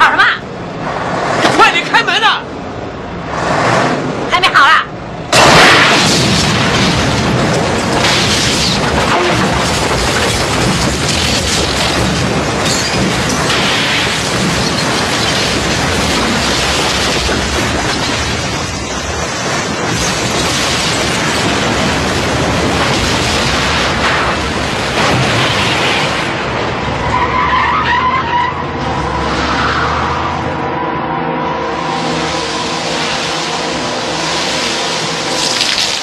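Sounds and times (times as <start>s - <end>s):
building collapsing rumble: 5.2s - 27.2s.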